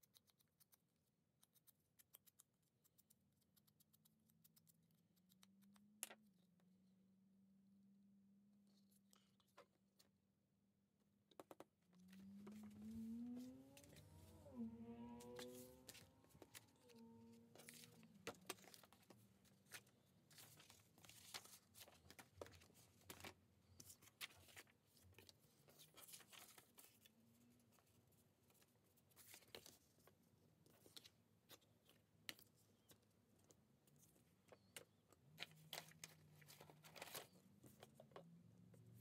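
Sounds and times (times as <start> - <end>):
paper rustling: 15.2 - 27.1, 27.7 - 33.0, 34.6 - 38.2.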